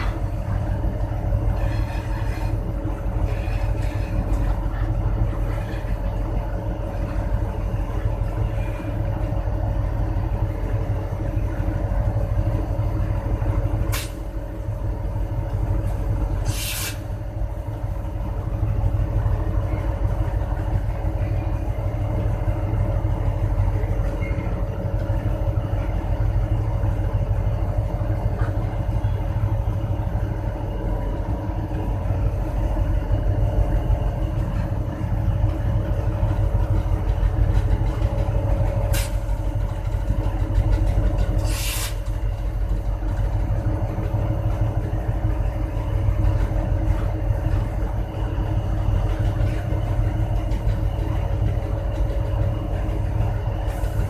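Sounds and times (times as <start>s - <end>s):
diesel locomotive rumbling: 0.0s - 54.0s
brief high hiss: 16.4s - 17.1s, 41.4s - 42.0s.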